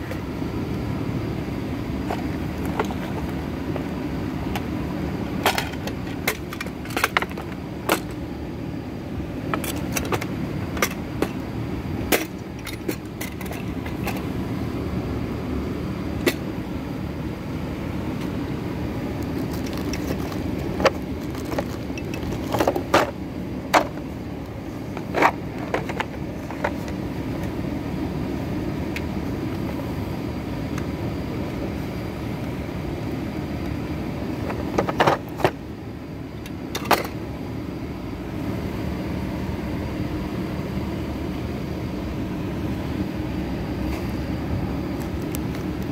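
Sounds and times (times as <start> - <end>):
low background rumble: 0.0 - 45.9
plastic cases clacking: 19.2 - 23.1, 25.0 - 27.0.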